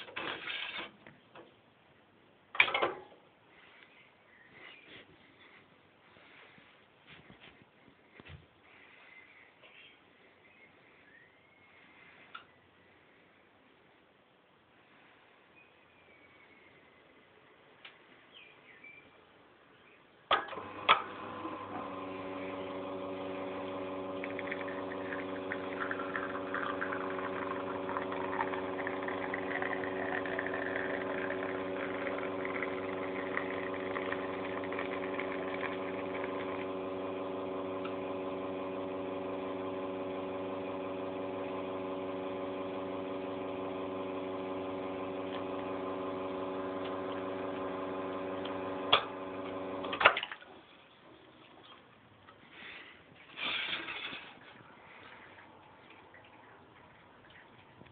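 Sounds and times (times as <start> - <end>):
espresso pump humming: 20.4 - 50.2
espresso spattering hiss: 21.0 - 38.1.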